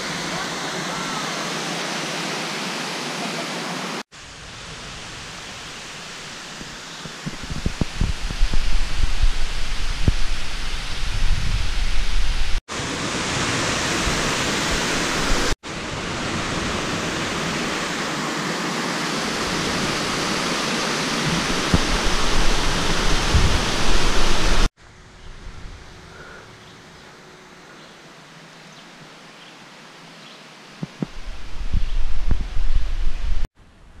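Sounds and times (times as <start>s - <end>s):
waterfall rushing: 0.0s - 4.1s, 4.8s - 24.7s.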